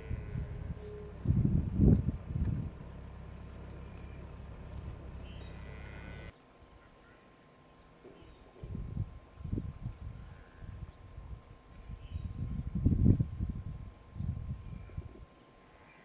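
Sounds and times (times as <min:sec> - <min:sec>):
low rumble: 0:00.0 - 0:06.3
low wind gusts: 0:00.0 - 0:06.3, 0:08.5 - 0:15.7
insects calling: 0:00.0 - 0:16.0.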